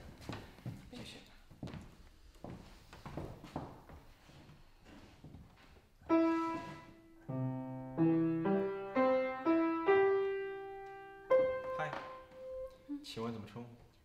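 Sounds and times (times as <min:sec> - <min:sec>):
slow piano: 0:06.0 - 0:13.1.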